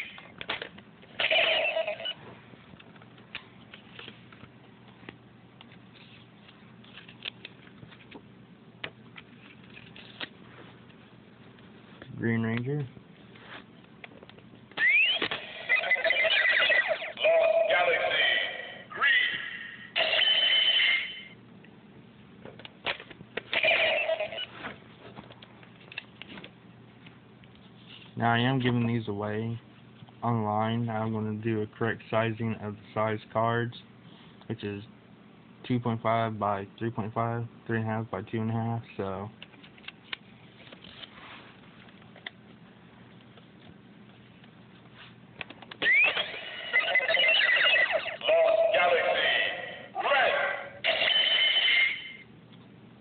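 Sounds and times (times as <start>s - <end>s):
electronic toy sound effect: 1.2s - 2.2s, 14.8s - 21.3s, 23.5s - 24.5s, 45.8s - 52.2s
card rustling: 2.8s - 8.3s, 9.1s - 12.1s, 39.4s - 42.4s
toy electronic ringing tones: 20.0s - 21.3s, 50.8s - 52.2s.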